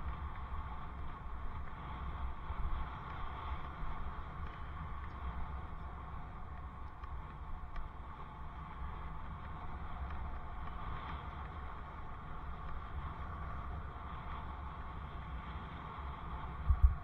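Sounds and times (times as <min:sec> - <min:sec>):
bicycle ride rumble and wind hiss: 0:00.0 - 0:17.0.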